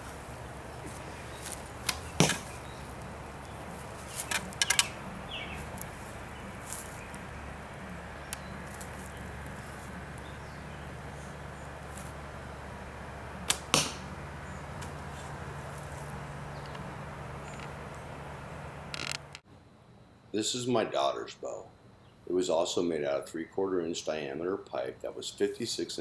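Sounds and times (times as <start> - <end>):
sharp clicks and knocks: 1.8 - 2.5, 4.2 - 5.0
bow string snap: 13.4 - 14.1.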